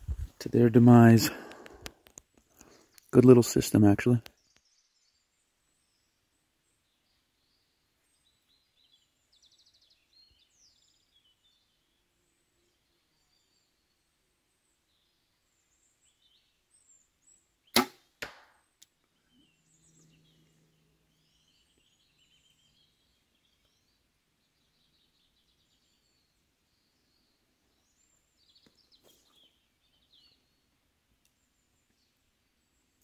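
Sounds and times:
small birds chirping: 0:00.0 - 0:33.0
bowstring snap: 0:17.7 - 0:19.0.

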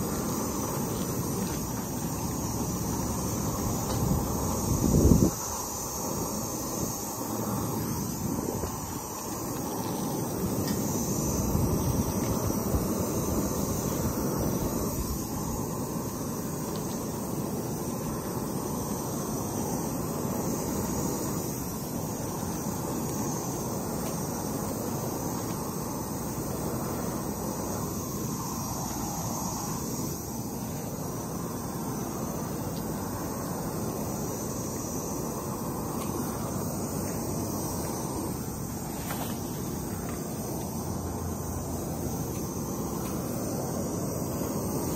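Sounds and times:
propane torch flame rushing: 0:00.0 - 0:44.9.

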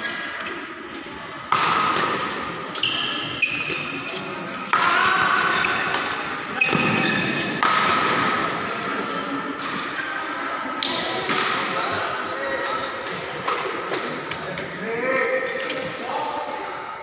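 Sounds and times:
racket hitting shuttlecock: 0:01.5 - 0:08.6, 0:10.8 - 0:11.8, 0:13.0 - 0:14.7.

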